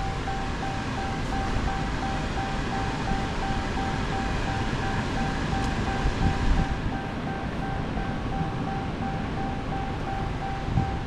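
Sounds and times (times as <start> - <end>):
low rumbling background noise: 0.0 - 11.0.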